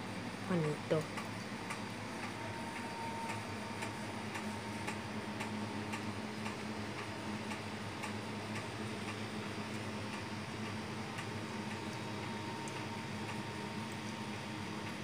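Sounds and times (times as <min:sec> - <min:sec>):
steady regular ticking: 0:00.5 - 0:02.4.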